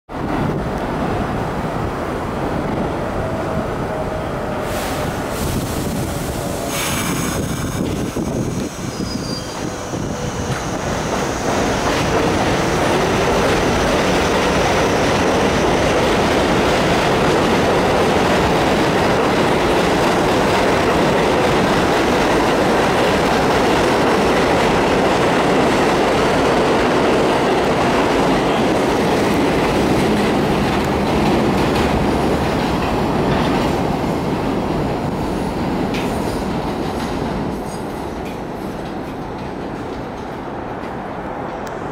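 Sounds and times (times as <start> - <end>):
subway train passing: 0.1 - 41.9
steel wheels on rail: 2.7 - 41.9.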